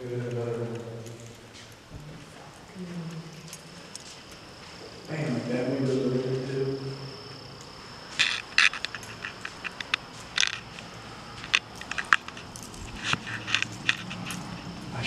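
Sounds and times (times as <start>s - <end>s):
footsteps crunching: 0.4s - 2.6s, 3.2s - 6.7s, 7.4s - 15.0s.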